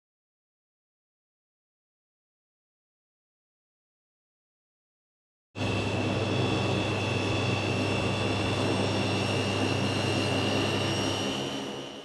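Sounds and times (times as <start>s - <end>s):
turboprop engines whining: 5.6s - 12.0s.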